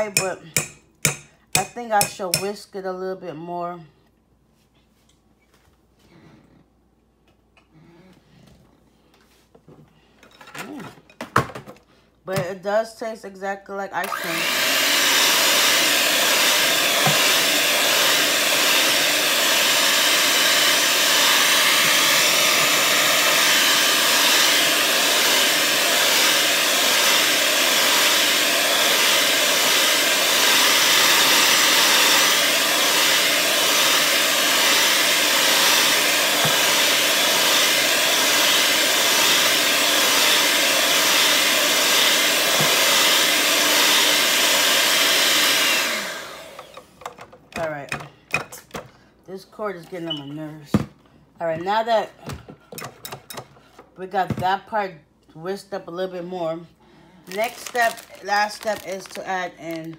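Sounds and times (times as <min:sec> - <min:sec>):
electric mixer whisking: 0:14.0 - 0:46.9.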